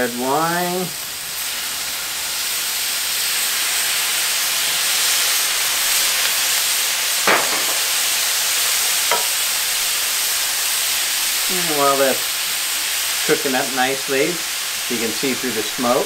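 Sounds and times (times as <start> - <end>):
wine sizzling on hot griddle: 0.0 - 16.0
short knocks: 7.3 - 7.9.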